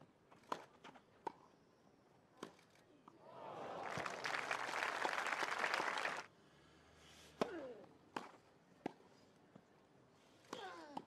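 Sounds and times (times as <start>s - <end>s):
crowd applause: 3.4s - 6.3s.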